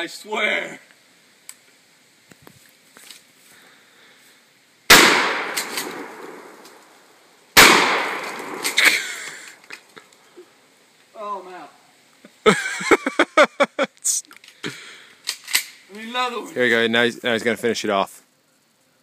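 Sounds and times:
shotgun blasts echoing: 0:04.9 - 0:06.7, 0:07.6 - 0:08.9.

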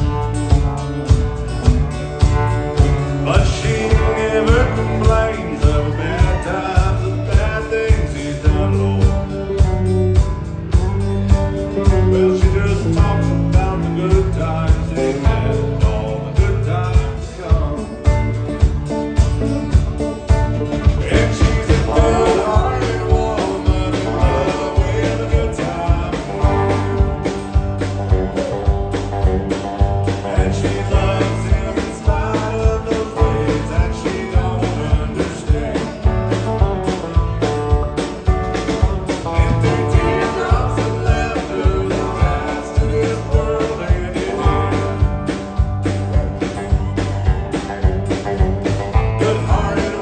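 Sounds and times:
drums keeping steady beat: 0:00.0 - 0:50.0
live country band playing: 0:00.0 - 0:50.0
woman singing: 0:21.1 - 0:26.2.

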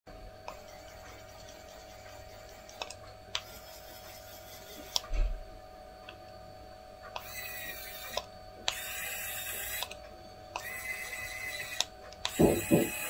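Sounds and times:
small motor whining: 0:00.5 - 0:05.2, 0:07.2 - 0:09.9, 0:10.6 - 0:13.0
tool handling knock: 0:12.3 - 0:13.0.

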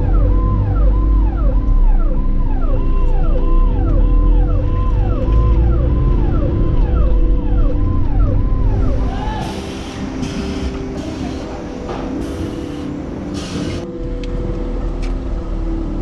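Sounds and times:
music with gliding notes: 0:00.0 - 0:16.0
factory floor noise: 0:08.8 - 0:16.0.

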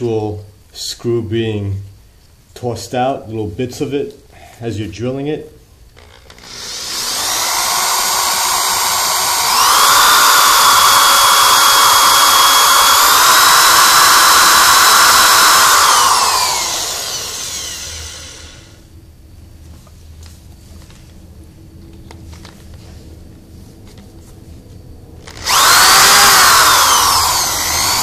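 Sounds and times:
power drill boring into steel: 0:06.0 - 0:18.8, 0:25.2 - 0:28.0.

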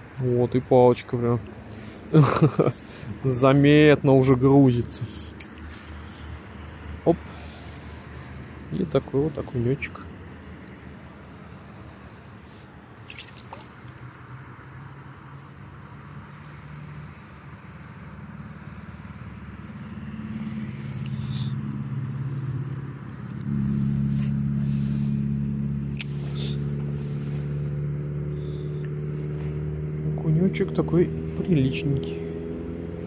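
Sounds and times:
vehicle engine running: 0:18.6 - 0:33.0.

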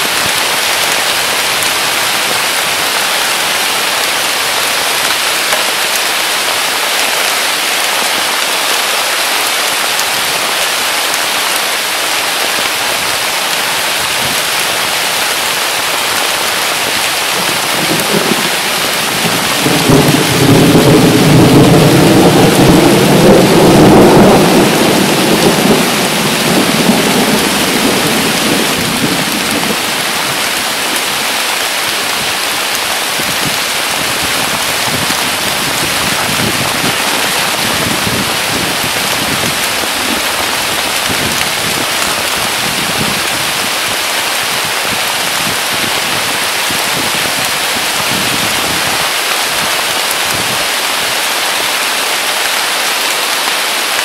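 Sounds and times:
heavy rain on foliage: 0:00.0 - 0:54.0
thunder rolling: 0:17.4 - 0:30.5.

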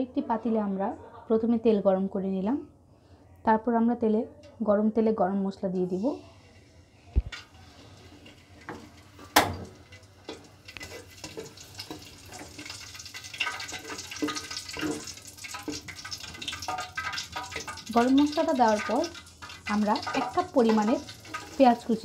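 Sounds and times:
spices sizzling in hot oil: 0:07.2 - 0:22.0.

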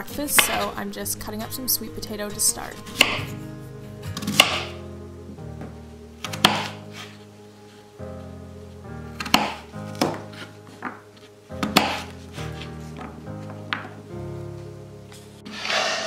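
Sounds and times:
soft background music: 0:00.0 - 0:16.0
knife chopping on wooden board: 0:04.2 - 0:04.8, 0:06.2 - 0:06.8, 0:09.2 - 0:10.2, 0:11.6 - 0:12.1.

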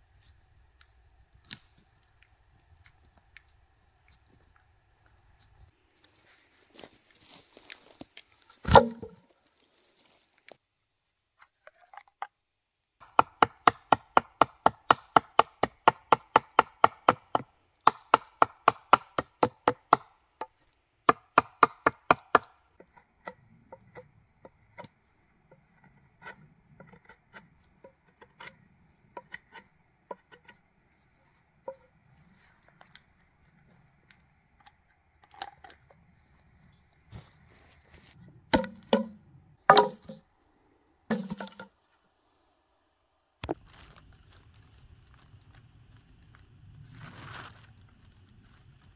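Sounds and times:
knife chopping wood: 0:08.6 - 0:09.2, 0:13.0 - 0:20.1, 0:21.1 - 0:24.0, 0:38.5 - 0:40.2, 0:41.1 - 0:41.7.

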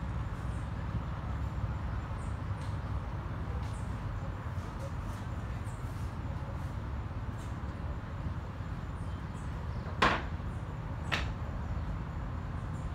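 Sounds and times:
sharp knocks: 0:10.0 - 0:10.3.

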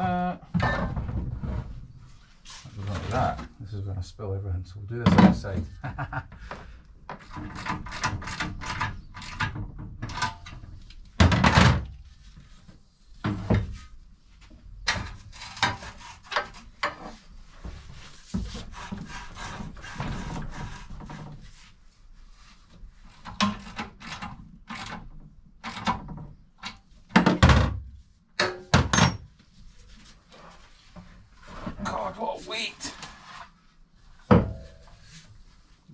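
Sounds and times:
metal knocks clunks and scraping: 0:00.5 - 0:03.9, 0:05.0 - 0:05.8, 0:06.4 - 0:12.5, 0:13.2 - 0:21.7, 0:23.0 - 0:27.8, 0:28.4 - 0:29.5, 0:33.0 - 0:35.4.

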